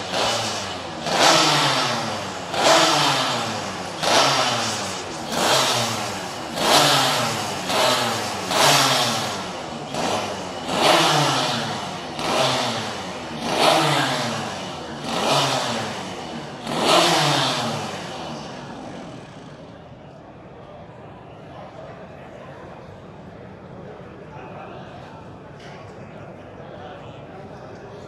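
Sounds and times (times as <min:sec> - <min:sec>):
two-stroke engine revving: 0:00.0 - 0:19.8.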